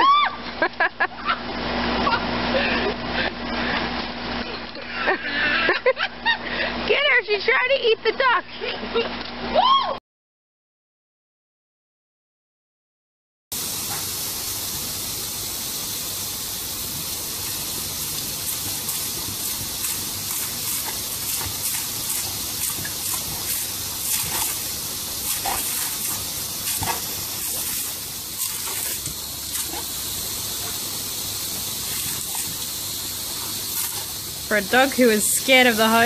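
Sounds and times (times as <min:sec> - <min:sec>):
garden hose spraying water: 0:13.5 - 0:36.0
dog biting at water splashes: 0:18.4 - 0:30.9, 0:31.8 - 0:32.7.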